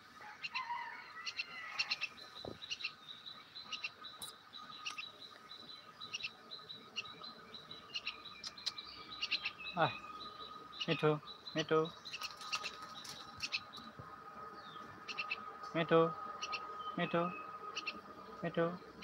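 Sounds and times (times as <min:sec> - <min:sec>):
myna chirping: 0:00.4 - 0:19.0.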